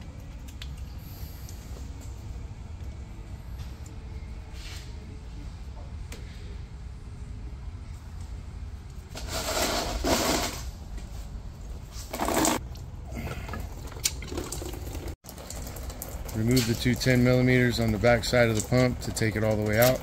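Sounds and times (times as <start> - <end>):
coolant splashing out: 12.0 - 20.0.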